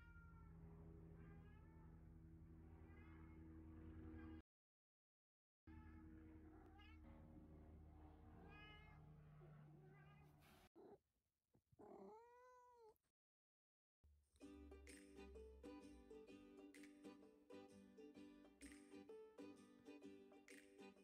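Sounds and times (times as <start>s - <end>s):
cat meowing: 0.0s - 0.6s, 1.2s - 1.9s, 2.9s - 3.4s, 6.5s - 7.2s, 8.4s - 9.1s, 11.8s - 13.0s
low steady hum: 0.0s - 4.4s.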